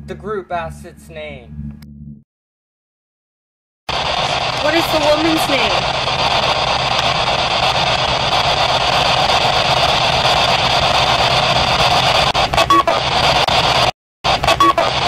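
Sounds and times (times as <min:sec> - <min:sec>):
chopped radio fragments: 0:03.9 - 0:15.0
radio static hiss: 0:03.9 - 0:15.0.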